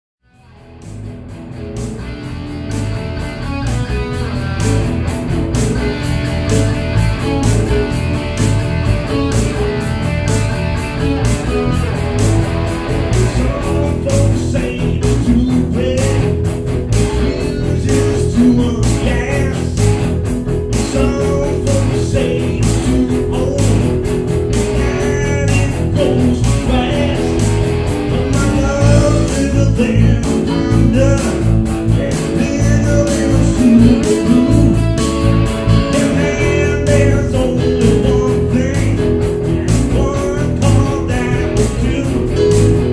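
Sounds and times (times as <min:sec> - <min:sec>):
rock band music: 0:00.2 - 0:42.9
wavering melodic voice: 0:32.0 - 0:35.2.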